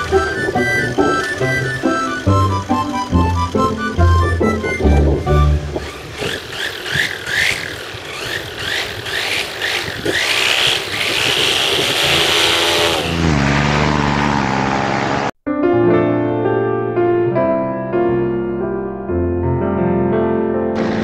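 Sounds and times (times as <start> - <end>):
paramotor engine revving: 0.0 - 15.4, 20.8 - 21.0.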